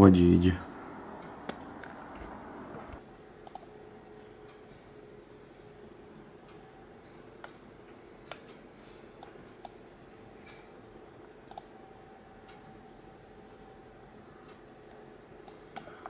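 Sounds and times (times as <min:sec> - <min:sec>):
low steady hum: 0:00.0 - 0:16.0
computer mouse clicking: 0:01.2 - 0:03.7, 0:09.2 - 0:09.8, 0:11.4 - 0:11.8, 0:14.8 - 0:16.0.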